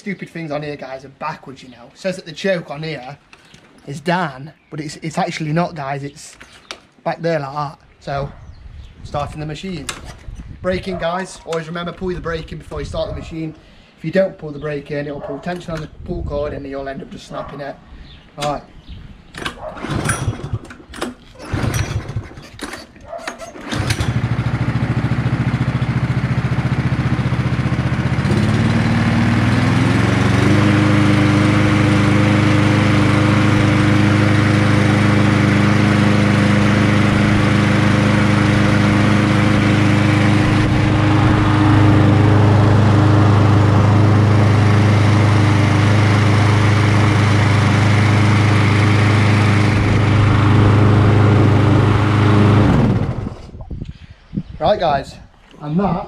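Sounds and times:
pull cord tugs: 0:19.3 - 0:24.2
lawnmower engine running: 0:19.3 - 0:53.6.

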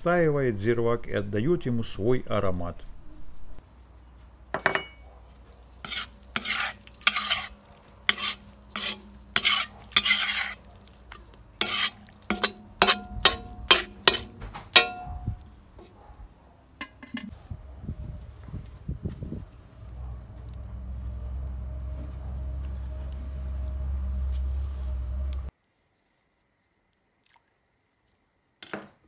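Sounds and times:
metal skimmer scraping pot: 0:04.0 - 0:16.0, 0:16.8 - 0:17.3
ringing metal clink: 0:04.6 - 0:05.0, 0:14.8 - 0:15.4.

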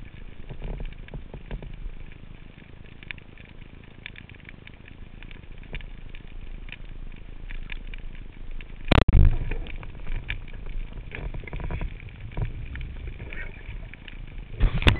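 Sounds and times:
faint clicks and crackle: 0:00.0 - 0:14.9
underwater low rumble: 0:00.0 - 0:14.9
churning rumble: 0:08.9 - 0:14.9.

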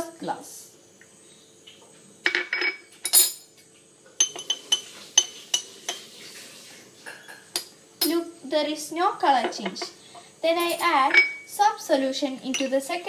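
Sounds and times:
glassware knocking: 0:04.2 - 0:05.3, 0:10.7 - 0:11.4
metal spoon clinking in glass: 0:04.2 - 0:06.0, 0:10.6 - 0:11.5, 0:12.5 - 0:12.8.

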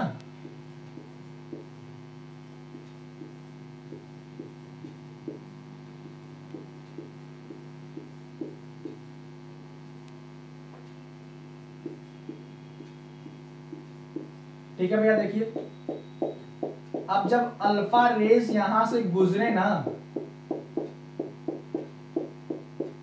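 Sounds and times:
electrical hum: 0:00.0 - 0:23.0
marker ticking on a whiteboard: 0:00.4 - 0:01.7, 0:02.7 - 0:05.4, 0:06.0 - 0:09.0, 0:11.8 - 0:17.3, 0:18.3 - 0:18.8, 0:19.8 - 0:23.0.

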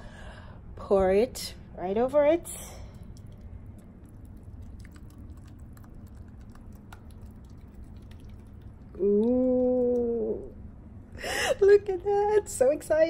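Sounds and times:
low steady hum: 0:00.0 - 0:13.0
marinade squishing: 0:02.8 - 0:10.7.

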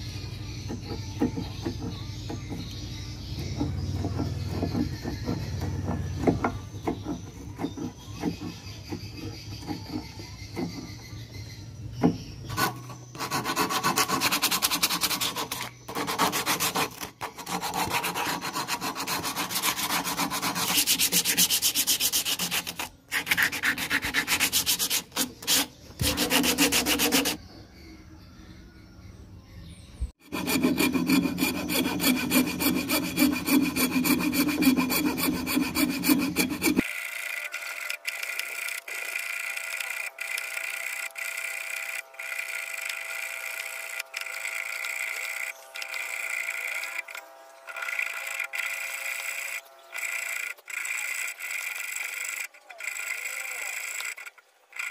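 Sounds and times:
spokeshave shaving wood: 0:00.6 - 0:11.3, 0:12.0 - 0:27.4, 0:30.2 - 0:54.9
sandpaper rubbing wood: 0:03.4 - 0:10.9, 0:12.5 - 0:27.4, 0:30.2 - 0:36.9.

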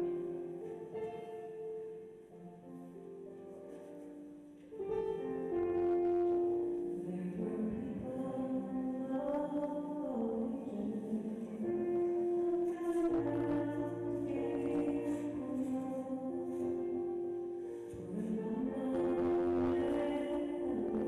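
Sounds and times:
person singing a hymn: 0:05.8 - 0:21.0.

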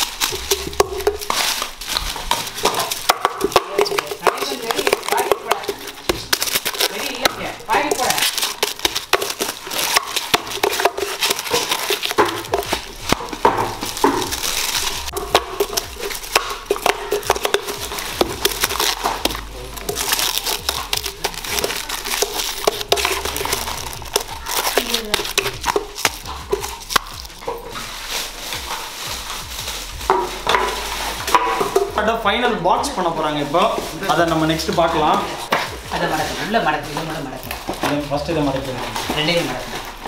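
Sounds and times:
plastic film crinkling: 0:00.0 - 0:40.0.

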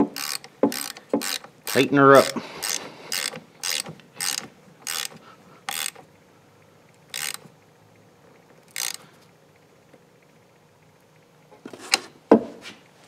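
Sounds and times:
ratchet wrench clicking: 0:00.0 - 0:06.0, 0:07.1 - 0:07.5, 0:08.7 - 0:09.0.

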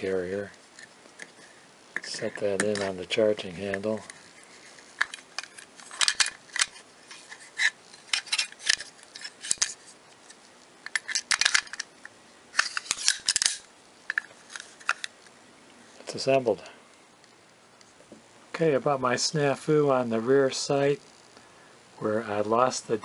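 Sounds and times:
metal parts clicking and scraping: 0:04.0 - 0:11.9, 0:12.5 - 0:15.1.

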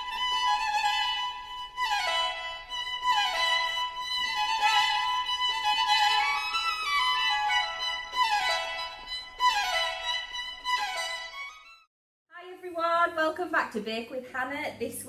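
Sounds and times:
instrumental background music: 0:00.0 - 0:11.9.

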